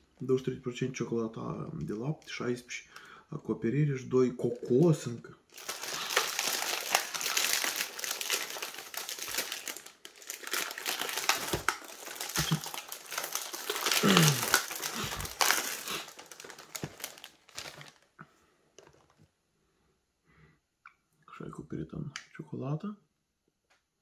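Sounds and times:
wrapper crinkling: 5.5s - 18.2s.

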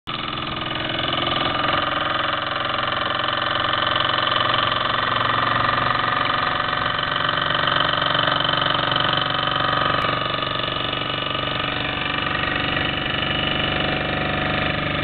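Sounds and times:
model steam engine chuffing: 0.1s - 15.0s.

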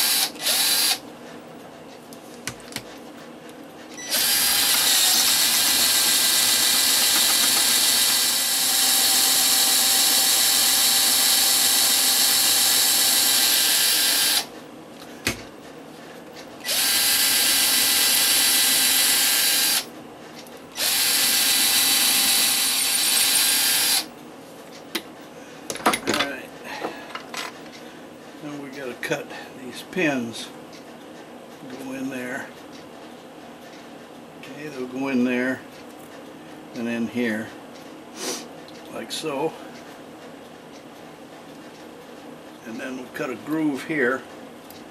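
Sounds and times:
rotary tool drilling concrete: 0.0s - 1.0s, 4.1s - 14.5s, 16.7s - 19.9s, 20.8s - 24.1s.

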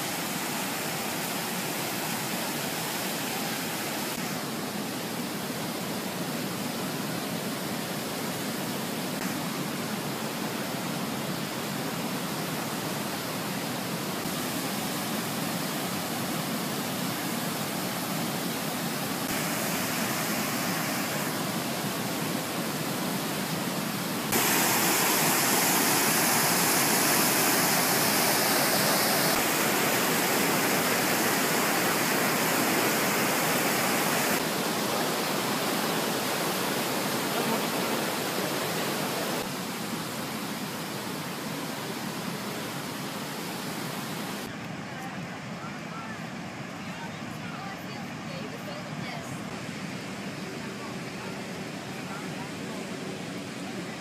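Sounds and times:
river rapids roaring: 0.0s - 54.0s.

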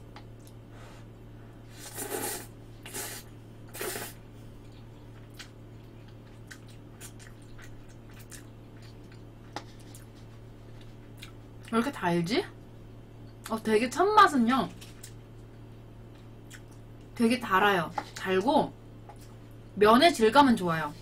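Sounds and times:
steady low hum: 0.0s - 21.0s
soft chewing with clicks: 0.1s - 0.6s, 4.6s - 11.8s, 14.8s - 17.2s
noodles slurped: 1.8s - 4.8s.

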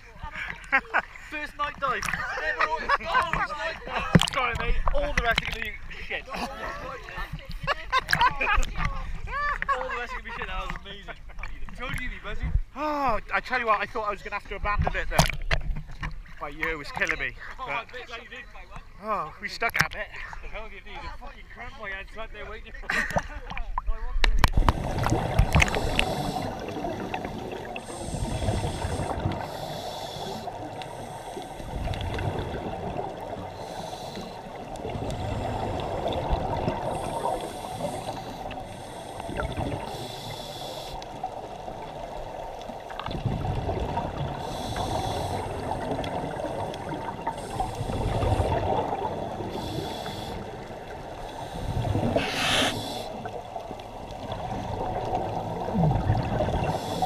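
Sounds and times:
exhaled bubbles underwater: 24.4s - 57.0s.

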